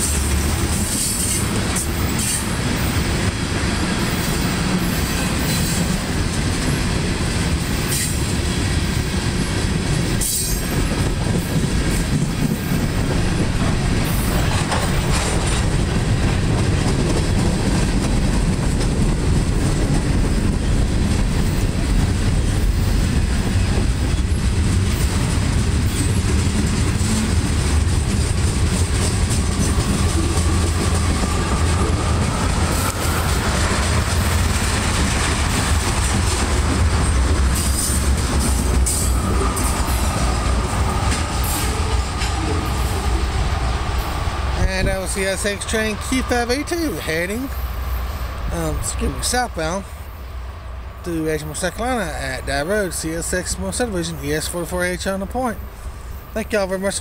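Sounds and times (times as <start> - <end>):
train wheels rumbling on rails: 0.0 - 57.0
wheels clicking over rail joints: 4.0 - 44.0.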